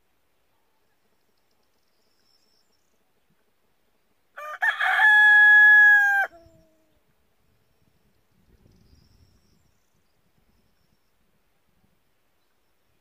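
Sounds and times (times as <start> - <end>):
rooster crowing: 4.4 - 6.5.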